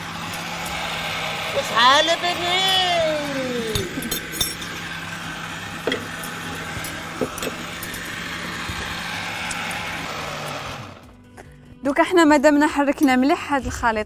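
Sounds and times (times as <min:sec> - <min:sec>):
blender running: 0:00.0 - 0:11.1.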